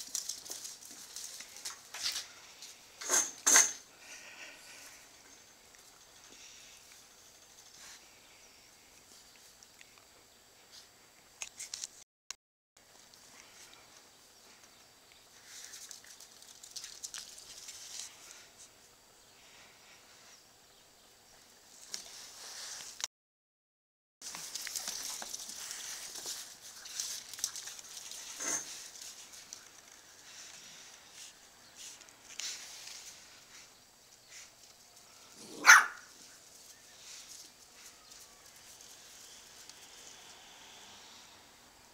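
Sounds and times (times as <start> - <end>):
dogs scuffling on tiled floor: 0.0 - 2.8, 15.3 - 18.4, 24.2 - 40.1
dog barking: 35.5 - 36.1.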